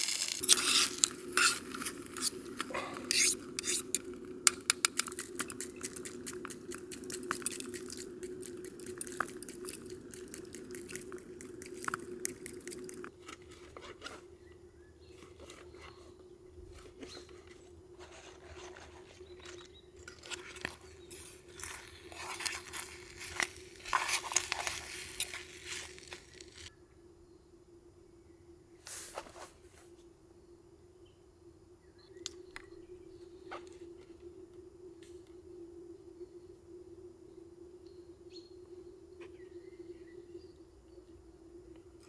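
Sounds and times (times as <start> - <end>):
small sharp clicks and crunches: 0.0 - 13.4, 19.4 - 26.7.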